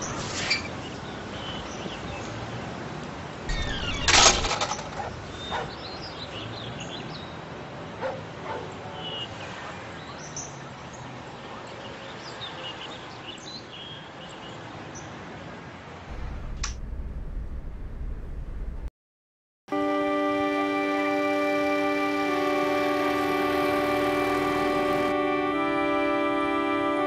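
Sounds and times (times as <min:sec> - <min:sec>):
loud clatter: 0:03.5 - 0:05.1
birds chirping: 0:03.5 - 0:07.4.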